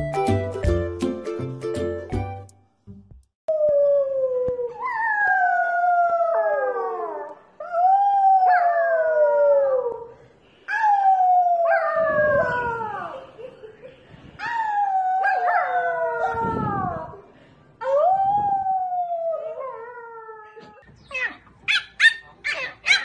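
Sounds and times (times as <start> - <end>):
small dog howling: 14.4 - 17.2.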